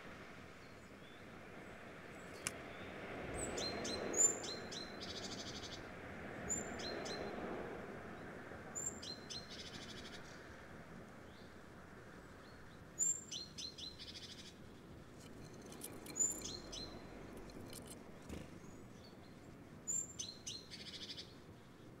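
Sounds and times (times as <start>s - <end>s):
blue tit calling: 15.2s - 18.8s.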